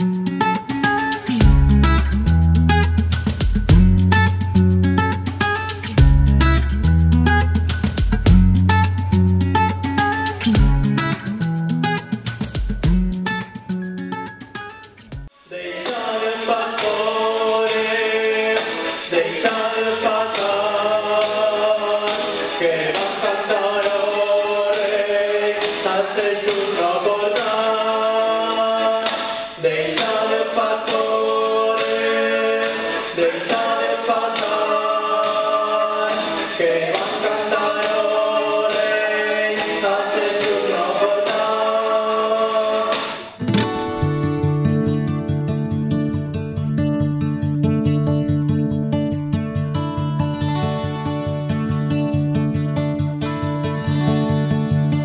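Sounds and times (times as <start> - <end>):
choir singing a carol: 15.4 - 43.1.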